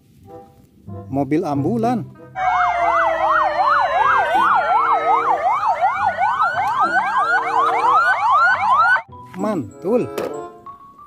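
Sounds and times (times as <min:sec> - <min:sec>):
ambulance sirens: 0:02.4 - 0:09.1.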